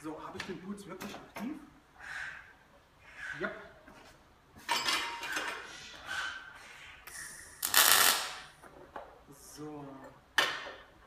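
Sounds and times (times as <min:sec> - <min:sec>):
welding arc bursts: 0:07.6 - 0:08.5.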